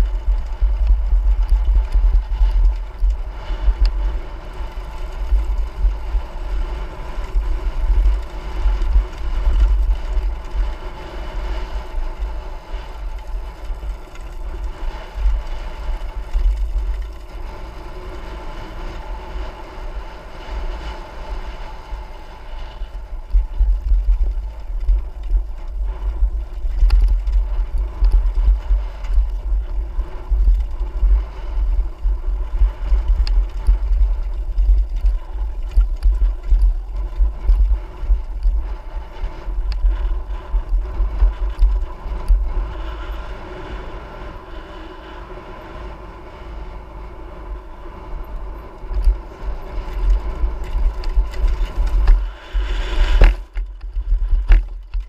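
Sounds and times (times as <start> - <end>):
motorcycle engine running: 0.0 - 44.2, 45.5 - 55.0
wind buffeting microphone: 0.0 - 55.0.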